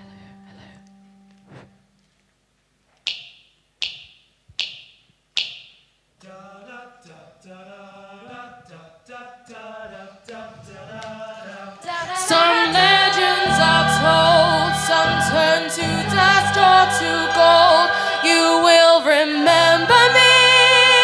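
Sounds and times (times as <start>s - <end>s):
a cappella group singing: 6.2s - 21.0s.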